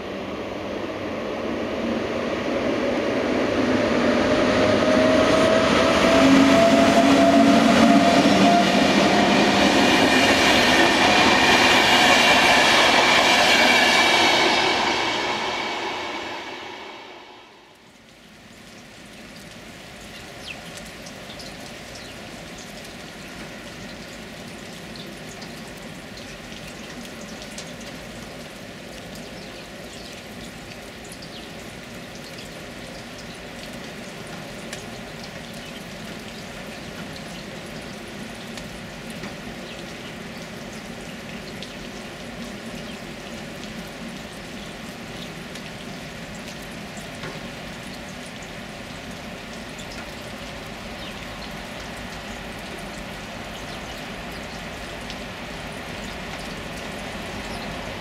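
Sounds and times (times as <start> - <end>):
steady water noise: 0.0 - 58.0.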